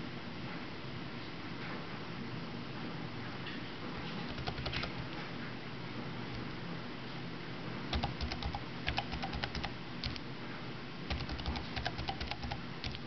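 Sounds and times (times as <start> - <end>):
laptop keys clicking: 4.3 - 5.2, 7.9 - 10.2, 11.1 - 13.0.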